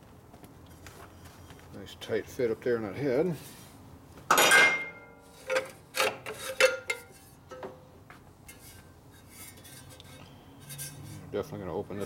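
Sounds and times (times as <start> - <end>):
ringing metallic clanks: 4.3 - 5.2
metal scraping on metal: 8.5 - 11.4.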